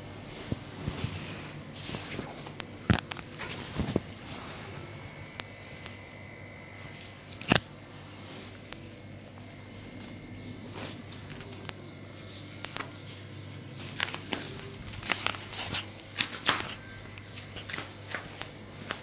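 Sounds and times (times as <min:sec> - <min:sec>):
faint steady hum: 0:00.0 - 0:19.0
clothing rustling: 0:00.2 - 0:04.6.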